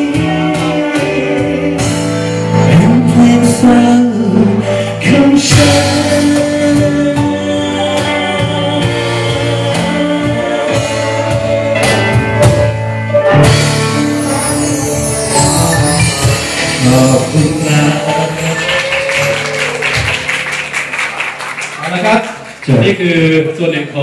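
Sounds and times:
man singing lead: 0.0s - 12.8s, 13.8s - 19.8s
live pop band playing: 0.0s - 21.0s.

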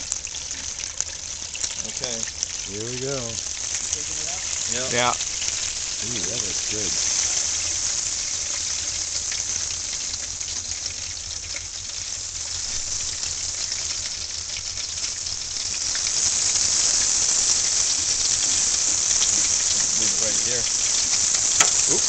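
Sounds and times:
hot oil sizzling and crackling: 0.0s - 22.0s.

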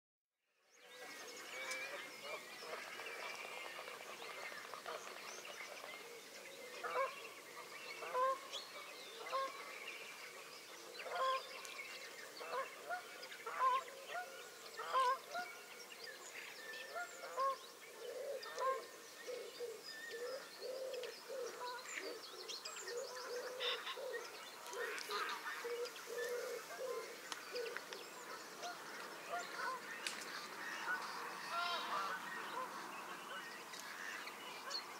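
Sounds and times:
geese honking: 8.0s - 8.5s, 11.1s - 11.4s, 12.4s - 15.5s, 24.6s - 27.2s, 28.3s - 32.8s.

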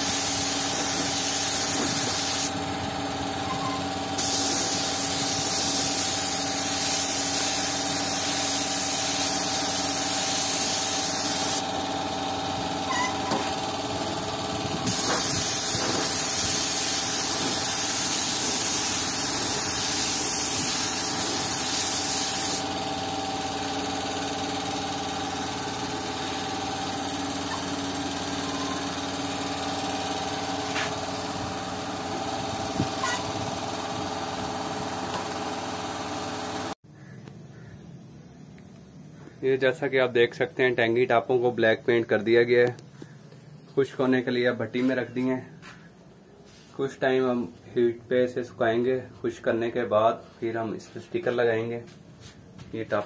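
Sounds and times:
spray gun air hiss: 0.0s - 2.6s, 3.4s - 11.7s, 12.9s - 33.8s.

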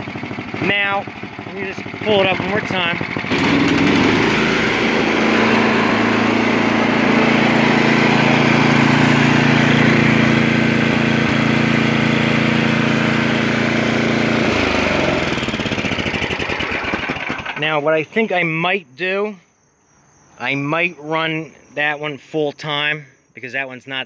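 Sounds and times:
snowblower engine running: 0.0s - 17.9s.

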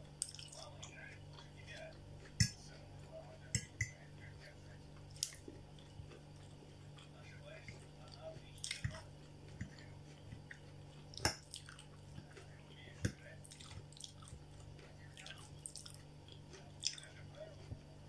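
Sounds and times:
chewing and wet mouth sounds: 0.0s - 18.0s
faint steady hum: 0.0s - 18.0s.

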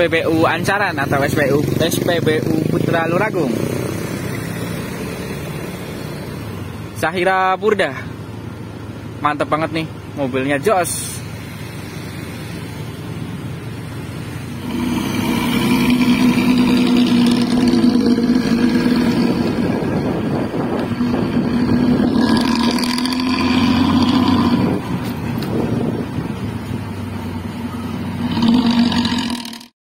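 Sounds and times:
bus diesel engine with tinny exhaust: 0.0s - 29.7s.

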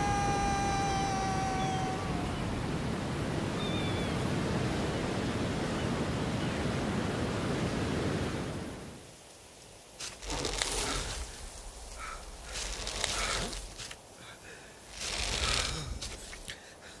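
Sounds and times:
sea surf rushing: 0.0s - 9.1s
sharp crackles and rustles: 9.2s - 14.2s, 14.8s - 16.6s.

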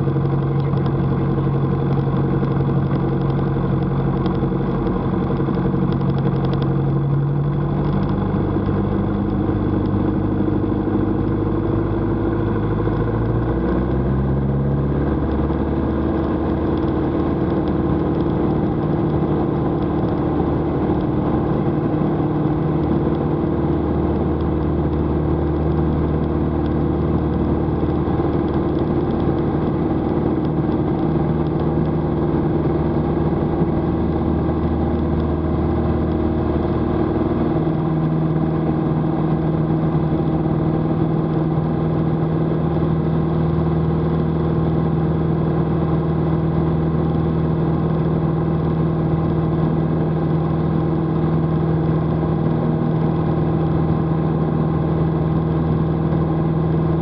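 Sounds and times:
airplane engine and propeller drone: 0.0s - 57.0s.

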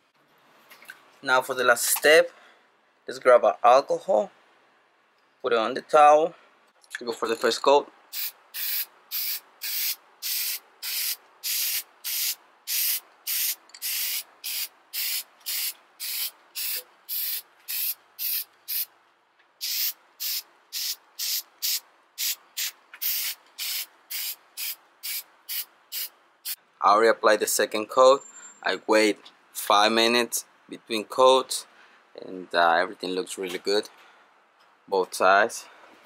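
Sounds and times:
aerosol paint spraying: 8.1s - 18.9s, 19.6s - 26.6s.

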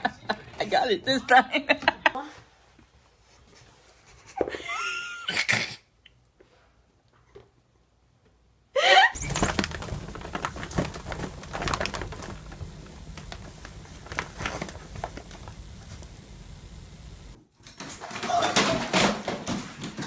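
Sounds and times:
cat rustling and scratching: 9.2s - 17.9s.

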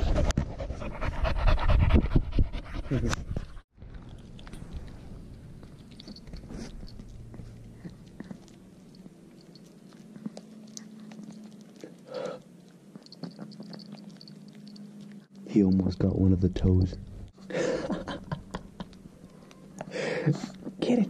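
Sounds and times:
pet chewing on bone: 3.8s - 15.9s.

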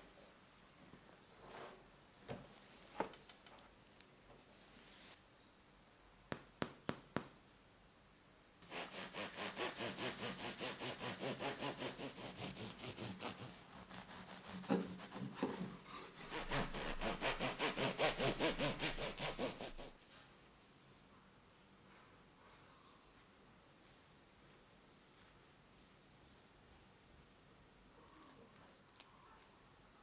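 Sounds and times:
bread knife sawing loaf: 8.6s - 20.0s.

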